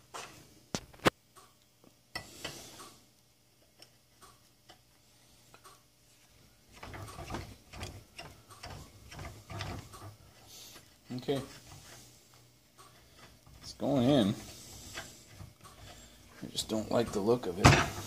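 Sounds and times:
threaded rod rattling and scraping: 6.7 - 10.2.

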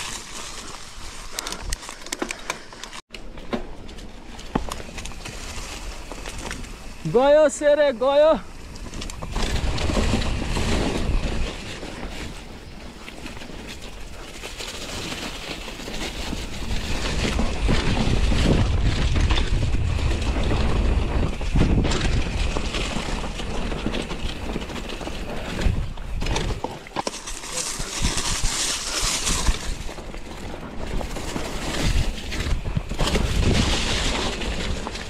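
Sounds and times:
mountain bike rumbling on dirt: 0.0 - 35.0
wind buffeting microphone: 8.4 - 26.8, 27.7 - 35.0.

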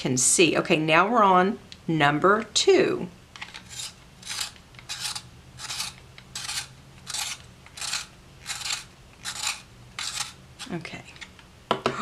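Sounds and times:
pencil sharpener shaving wood: 3.6 - 10.8.

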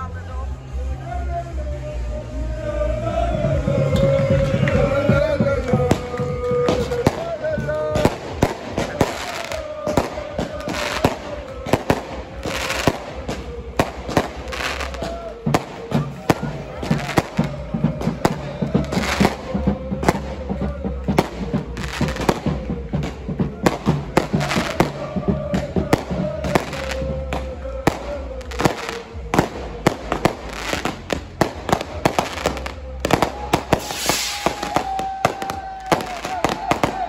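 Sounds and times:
fireworks bangs and crackles: 3.6 - 37.0
rushing hiss: 33.8 - 35.0.

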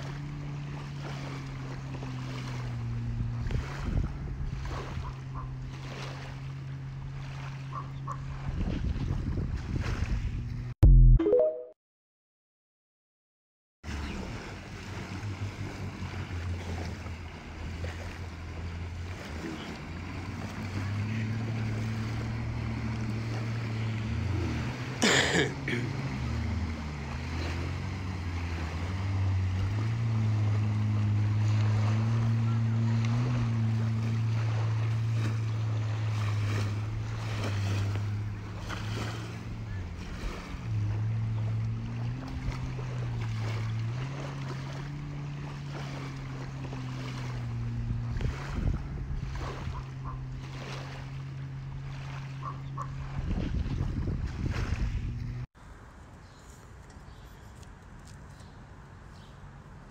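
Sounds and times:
splashing water: 0.0 - 10.6, 13.9 - 55.5
jet ski engine droning: 0.0 - 11.4, 13.9 - 59.9
wind on microphone: 2.4 - 6.0, 8.0 - 10.7, 46.9 - 50.9, 52.4 - 55.4.

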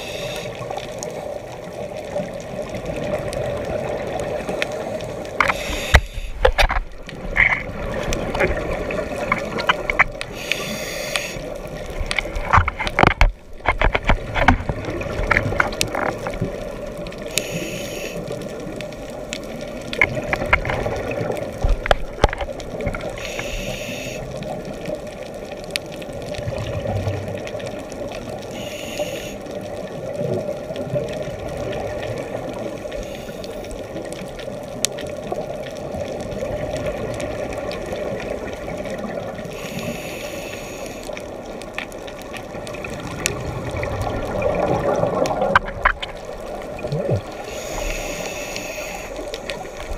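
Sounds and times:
regulator breathing hiss and bubbles: 0.0 - 1.4, 3.4 - 12.4, 15.0 - 19.3, 22.9 - 24.8, 28.3 - 30.6, 31.8 - 34.0, 37.8 - 41.7, 46.2 - 49.9
muffled underwater rumble: 0.0 - 49.9.

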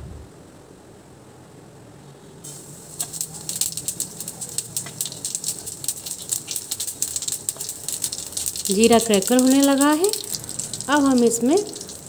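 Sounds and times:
seeds crackling and popping: 2.4 - 12.0
seeds sizzling in hot oil: 2.4 - 12.0.

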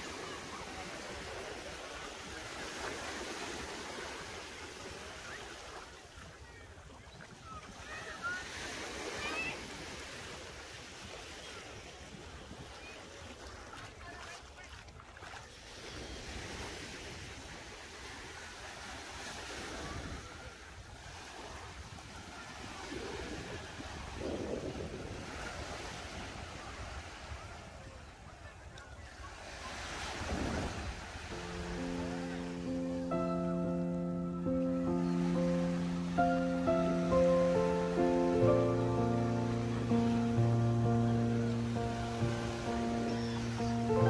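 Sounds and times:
waves washing onto beach: 0.0 - 44.0
wind rumbling on microphone: 22.6 - 27.5, 30.2 - 31.1.

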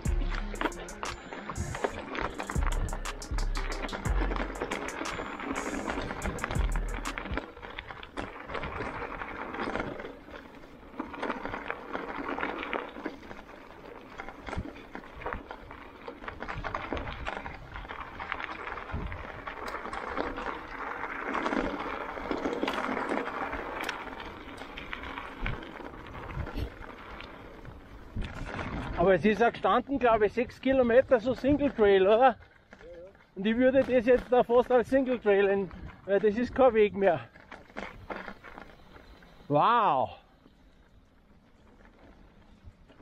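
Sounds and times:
bike clattering clicks: 0.0 - 29.5
bike tyres on rough trail: 0.0 - 43.0.

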